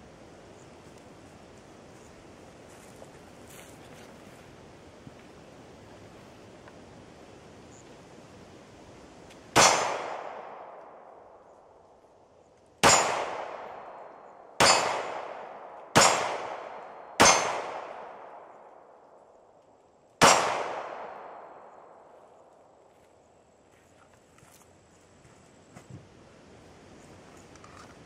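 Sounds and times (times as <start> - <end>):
pistol shots echoing: 9.5 - 11.2, 12.8 - 19.0, 20.2 - 22.0.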